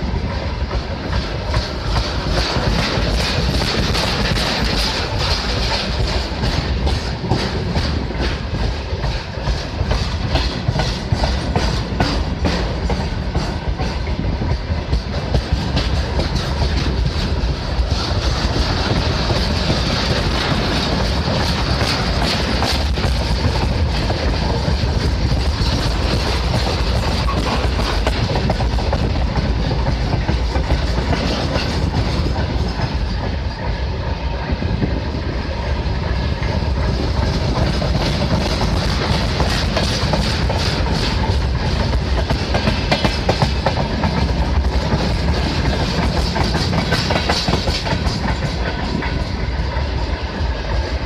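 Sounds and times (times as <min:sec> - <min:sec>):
train wheels rumbling on rails: 0:00.0 - 0:51.0
wheels clicking over rail joints: 0:00.2 - 0:33.7, 0:36.4 - 0:50.9.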